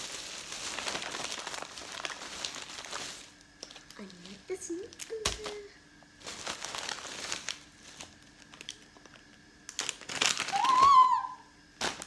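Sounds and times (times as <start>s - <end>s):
plastic bag crinkling: 0.0s - 12.0s
child excited exclamation: 10.5s - 11.4s.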